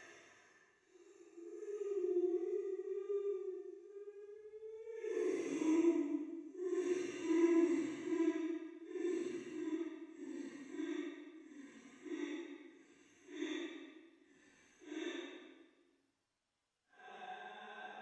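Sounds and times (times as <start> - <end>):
woman sobbing: 1.4 - 8.4.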